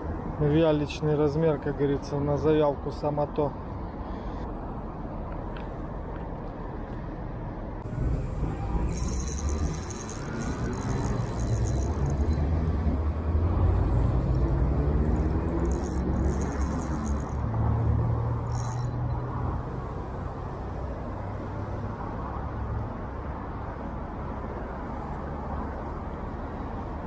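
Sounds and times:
engine rumble: 5.3s - 22.0s.

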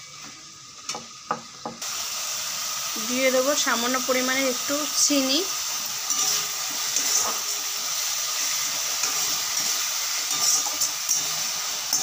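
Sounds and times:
paste sizzling in hot oil: 1.3s - 12.0s
metal spatula scraping pan: 6.0s - 7.8s, 8.4s - 12.0s.

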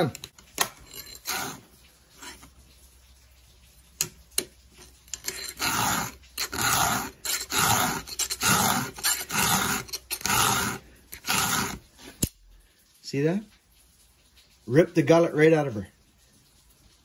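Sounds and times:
file rasping on chain: 0.6s - 2.5s, 5.1s - 11.9s.

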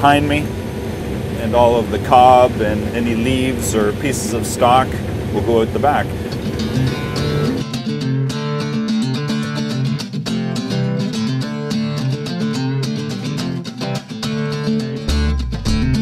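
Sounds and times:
strummed guitar music: 0.0s - 16.0s
deep bass notes: 15.0s - 16.0s.

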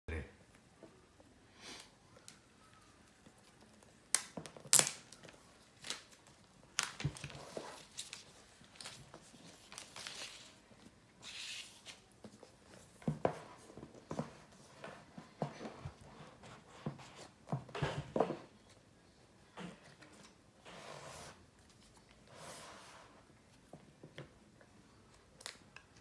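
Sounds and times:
plastic wrap tearing and crinkling: 3.9s - 10.6s.

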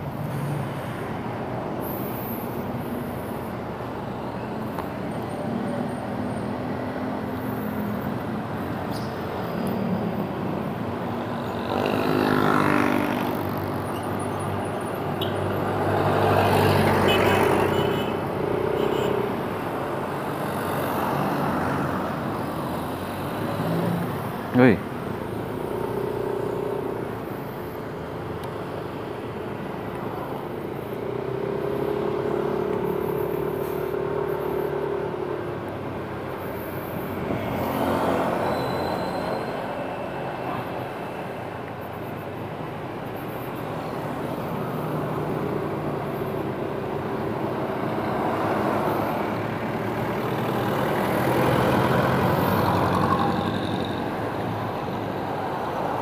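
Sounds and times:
road and wind noise: 0.0s - 56.0s.

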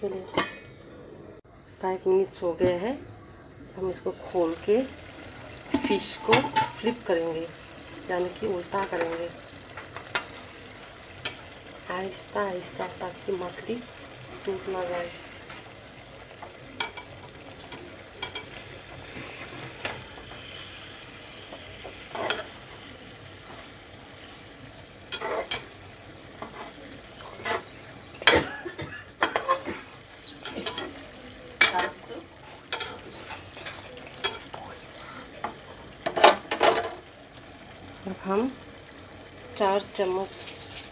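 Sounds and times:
curry simmering and sizzling: 0.0s - 40.9s
spatula scraping pan: 14.4s - 22.6s, 25.0s - 25.8s, 26.4s - 26.8s, 27.4s - 28.4s, 31.6s - 34.6s, 40.2s - 40.9s.

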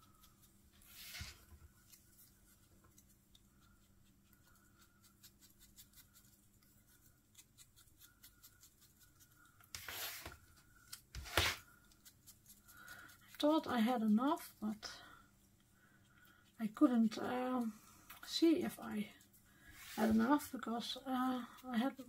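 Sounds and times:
brushing scrape: 0.0s - 3.1s, 9.7s - 10.5s, 11.1s - 12.6s, 19.6s - 20.6s
scratching of paper pieces: 9.7s - 10.4s, 11.1s - 11.6s.

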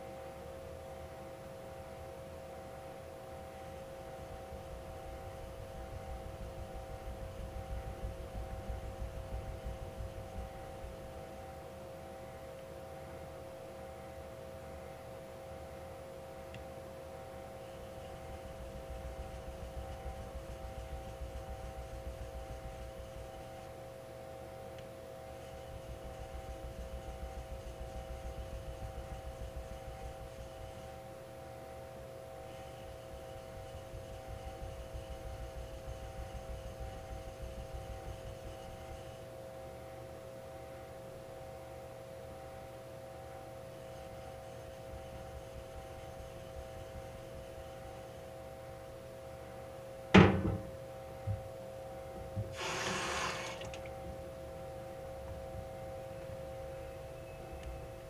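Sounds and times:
steady hum: 0.0s - 58.0s
loud sharp knock: 50.2s - 50.7s
short hissing rush: 52.5s - 53.8s.

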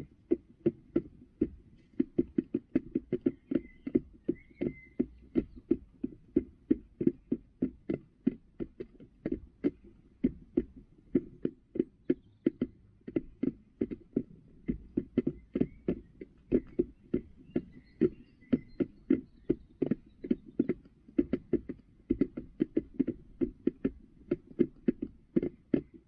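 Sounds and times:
hen pecking plastic feeder: 0.0s - 26.0s.

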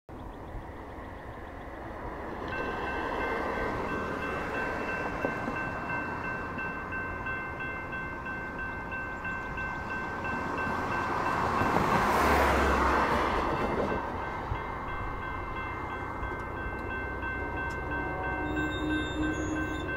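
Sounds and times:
level-crossing bell ringing: 2.6s - 11.5s, 13.6s - 19.9s.

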